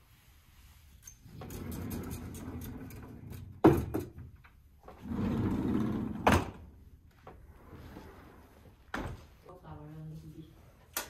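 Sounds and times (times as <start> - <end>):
sliding doors rumbling on track: 5.0 - 6.4.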